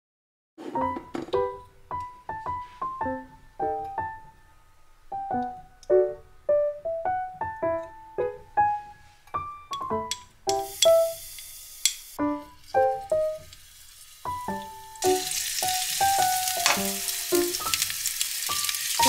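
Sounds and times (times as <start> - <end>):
keyboard playing light melody: 0.6 - 11.1, 12.2 - 13.4.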